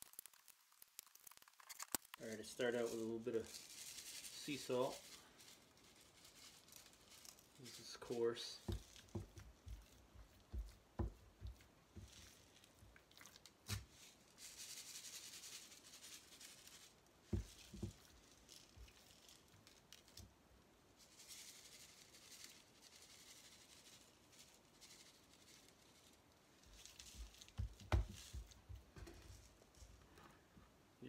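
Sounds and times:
salt shaken from shaker: 2.3s - 12.7s, 13.7s - 20.2s, 21.0s - 28.8s
hand patting meat: 8.6s - 12.1s.

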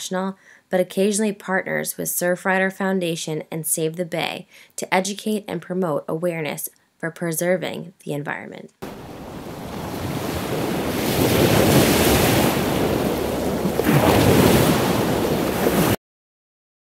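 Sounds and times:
ocean surf washing on beach: 8.8s - 16.0s.

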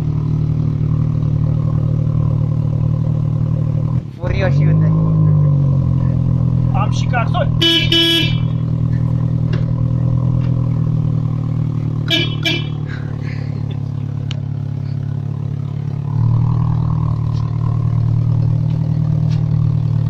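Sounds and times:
car engine running: 0.0s - 20.0s
car horn toots: 7.5s - 8.7s, 12.0s - 12.9s.

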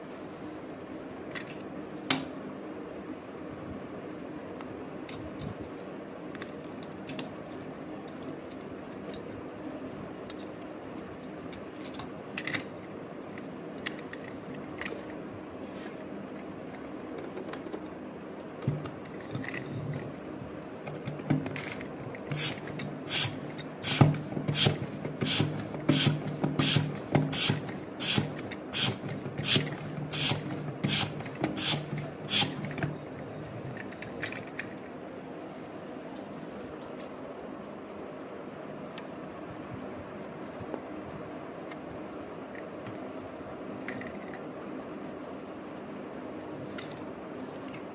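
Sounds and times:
hand pump strokes: 22.3s - 32.6s.

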